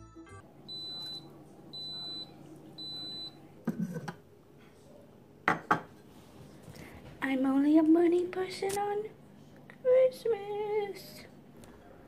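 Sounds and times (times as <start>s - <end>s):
coffee maker beeping: 0.7s - 3.4s.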